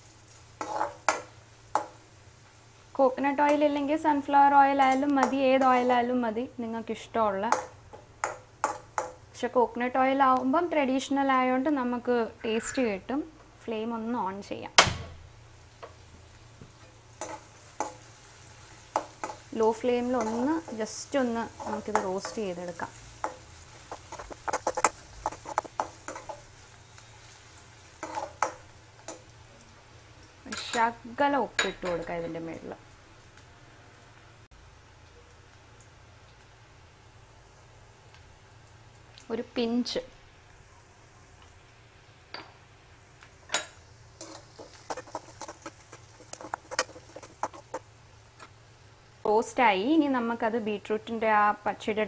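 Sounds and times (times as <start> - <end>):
faint sizzle of oil: 0.0 - 52.0
metal spatula scraping a pan: 0.6 - 1.2, 17.2 - 18.1, 18.9 - 26.5, 27.2 - 29.2, 44.2 - 48.5.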